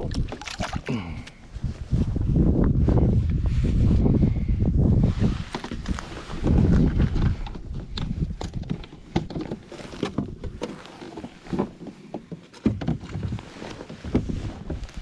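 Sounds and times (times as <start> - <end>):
gear knocks and clicks in kayak: 0.0 - 1.4, 5.4 - 15.0
wind buffeting microphone: 1.4 - 9.4
feet shifting in plastic kayak: 5.2 - 15.0.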